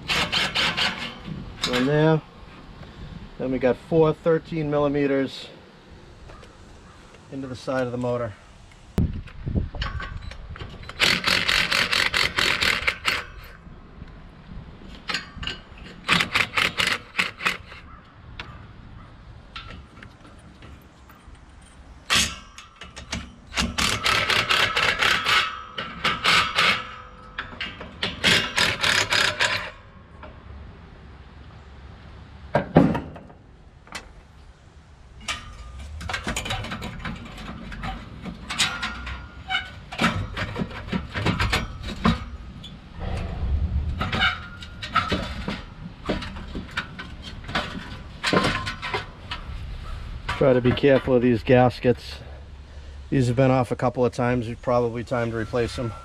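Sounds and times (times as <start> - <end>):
metallic clanks and rattles: 0.0 - 2.2, 9.1 - 13.6, 14.8 - 30.4, 35.1 - 51.6.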